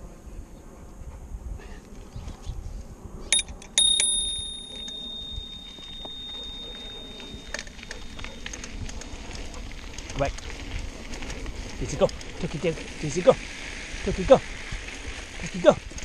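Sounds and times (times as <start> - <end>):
bicycle bell ringing: 3.4 - 8.7
bike rolling on dirt trail: 4.5 - 16.0.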